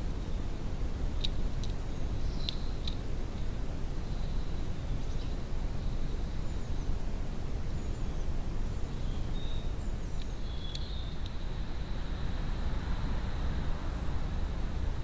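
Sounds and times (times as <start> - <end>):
low outdoor rumble: 0.0 - 15.0
high bird chirps: 9.0 - 11.2.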